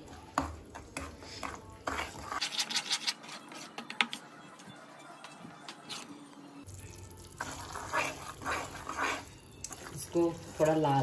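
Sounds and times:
metal spatula scraping a pan: 0.4 - 3.7, 7.4 - 11.0.

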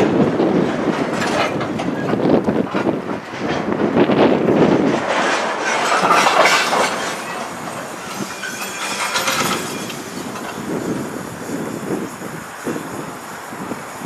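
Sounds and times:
freight train rolling: 0.0 - 14.0
wheel or brake squeal: 5.8 - 14.0.

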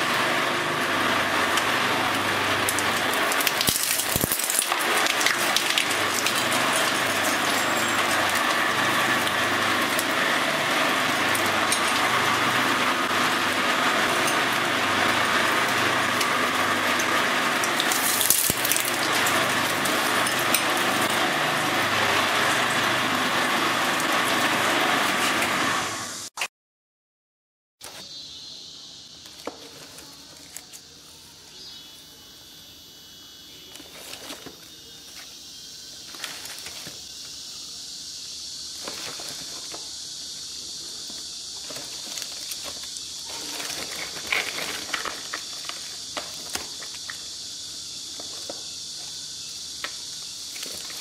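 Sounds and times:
shredder grinding plastic: 0.0 - 26.3, 33.7 - 37.5, 38.7 - 51.0
small cracks: 2.6 - 7.6.

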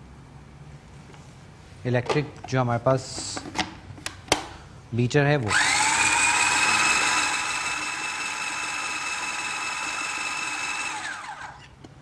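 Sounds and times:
food chopper motor whining: 5.5 - 11.8.

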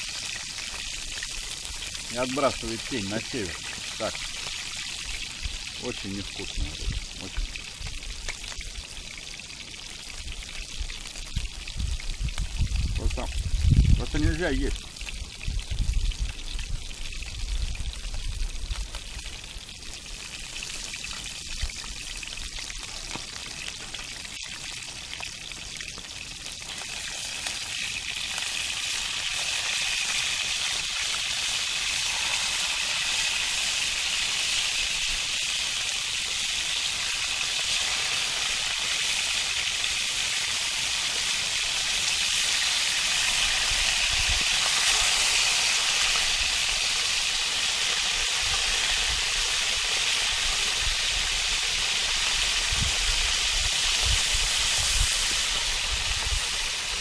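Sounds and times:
fish frying sizzle: 0.0 - 57.0.

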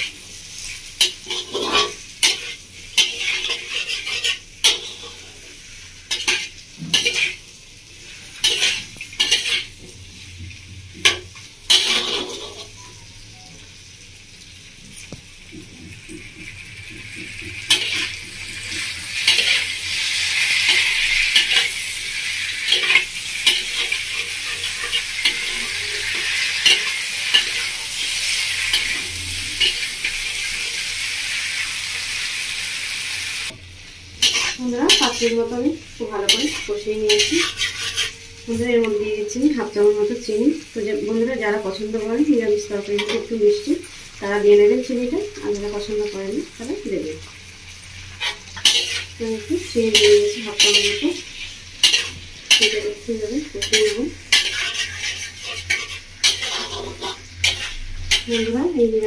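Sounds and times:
frying sizzle: 0.0 - 59.0
spatula scraping metal pan: 1.0 - 5.4, 8.4 - 9.8, 11.0 - 12.8, 18.8 - 30.2, 36.2 - 38.6, 48.2 - 49.1, 49.9 - 51.2, 51.8 - 53.0, 53.6 - 58.6.

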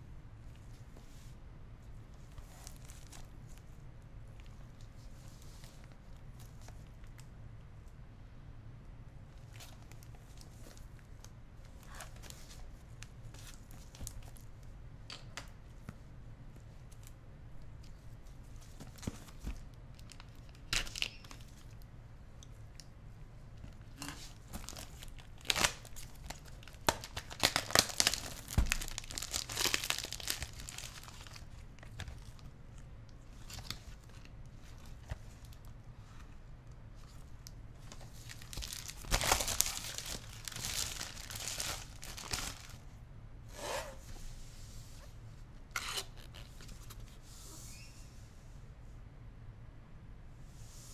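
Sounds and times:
shrink wrap tearing and crinkling: 19.9 - 21.8, 24.0 - 32.5, 37.9 - 42.8.

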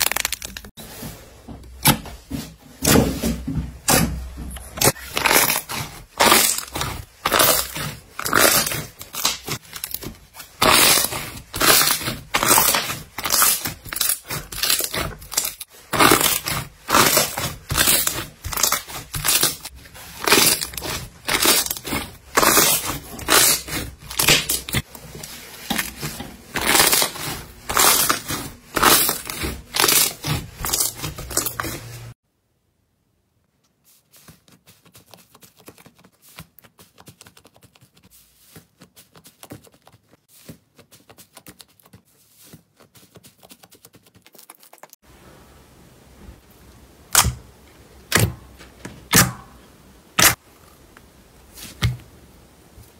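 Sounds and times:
slime squelching: 4.6 - 32.2
slime crackling in a plastic tub: 4.8 - 32.1.

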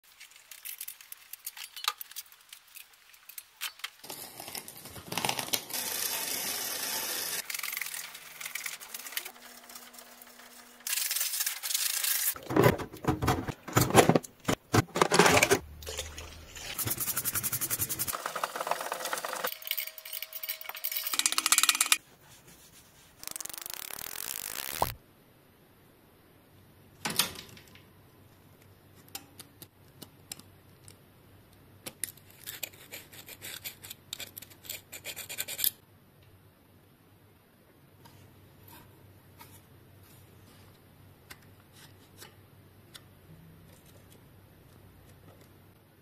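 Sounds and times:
small metal parts clicking: 18.9 - 22.0.

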